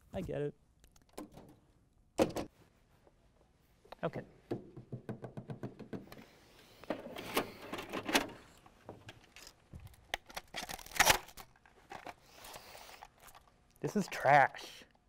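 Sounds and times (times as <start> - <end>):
fingers tapping on a desk: 4.5 - 6.1.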